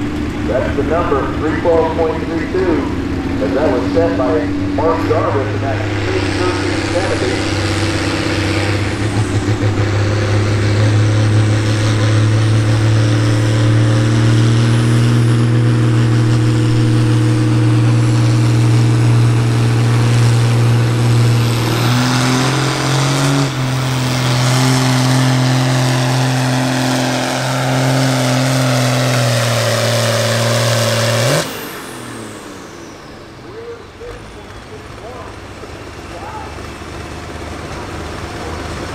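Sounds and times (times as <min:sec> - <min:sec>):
diesel tractor engine under load: 0:00.0 - 0:38.9.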